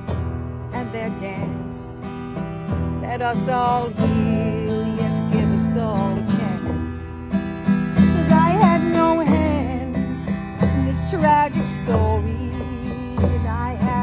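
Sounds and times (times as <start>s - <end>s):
acoustic guitar strumming: 0.0s - 14.0s
person singing: 3.0s - 7.3s, 8.0s - 14.0s.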